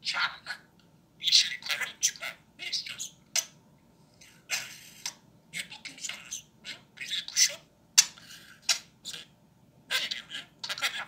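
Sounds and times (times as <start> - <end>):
budgerigar chattering: 1.2 - 3.6, 5.6 - 9.3, 9.9 - 11.0.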